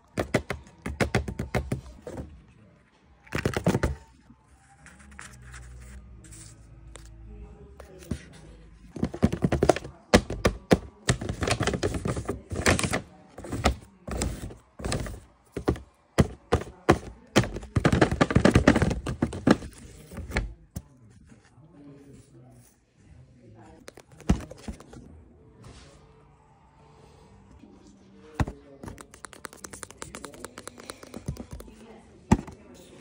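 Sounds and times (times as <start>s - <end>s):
paper thuds and taps: 9.0s - 20.5s.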